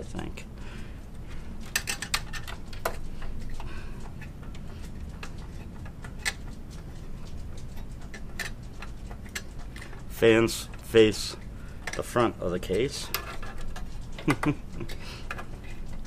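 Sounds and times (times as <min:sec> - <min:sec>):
air conditioner hum: 0:00.0 - 0:16.0
hands handling plastic and metal parts: 0:01.6 - 0:07.0.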